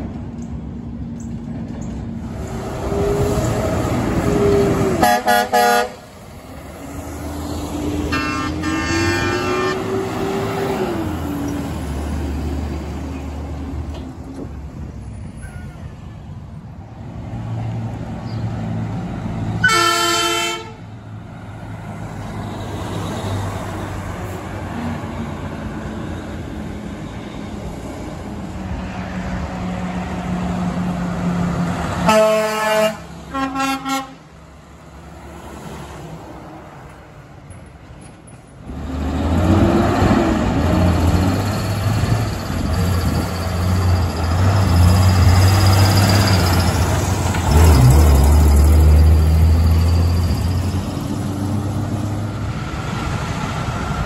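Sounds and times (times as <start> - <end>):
passing traffic: 0.0 - 54.0
truck diesel engine pulling away: 2.1 - 5.0, 38.6 - 54.0
truck air horn blasts: 4.3 - 6.1, 8.1 - 10.1, 19.6 - 20.8, 32.0 - 34.3.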